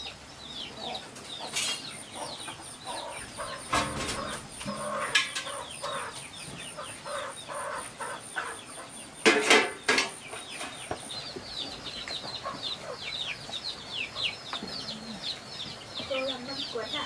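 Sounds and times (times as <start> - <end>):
chicks peeping: 0.0 - 17.0
chicken squawks: 2.9 - 6.2, 6.8 - 9.0.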